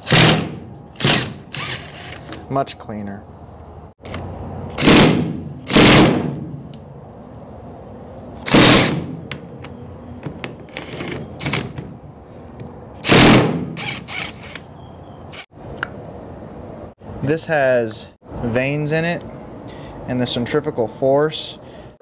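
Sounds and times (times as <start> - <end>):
impact driver bursts: 0.0 - 2.3, 4.8 - 6.4, 8.5 - 9.1, 13.0 - 14.6.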